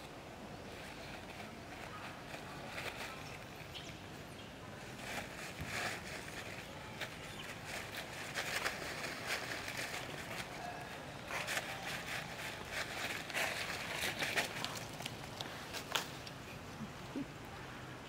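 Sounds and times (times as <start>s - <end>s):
dry leaves rustling and crackling: 0.0s - 16.6s.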